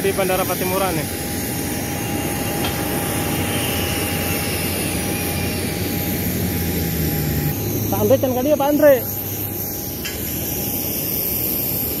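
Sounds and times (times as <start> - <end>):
jet airliner rumble and whine: 0.0 - 12.0.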